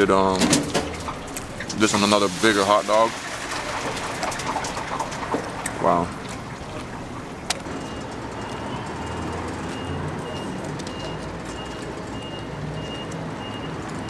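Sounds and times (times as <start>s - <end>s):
traffic engine rumble: 0.0s - 14.0s
faint high-pitched beep: 7.8s - 13.8s.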